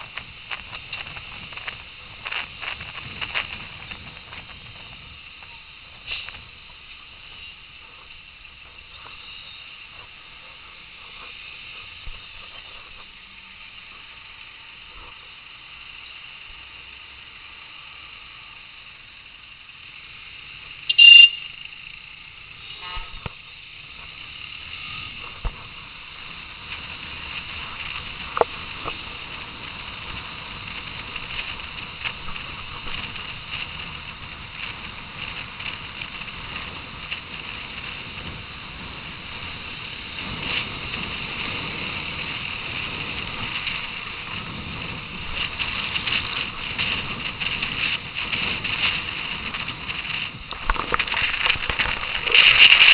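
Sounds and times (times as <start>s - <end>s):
wind noise: 0.0s - 13.1s, 24.7s - 52.9s
traffic noise: 0.0s - 52.9s.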